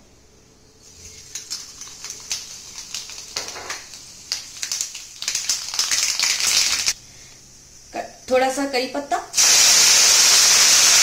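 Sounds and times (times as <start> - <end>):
mustard seeds popping in hot oil: 1.1 - 7.0.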